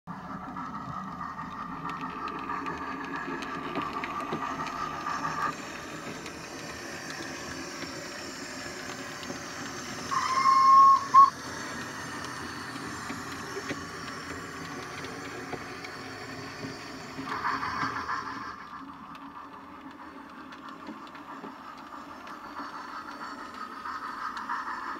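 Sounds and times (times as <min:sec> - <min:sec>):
model steam locomotive running: 0:00.1 - 0:24.9
train whistle blast: 0:10.1 - 0:11.3.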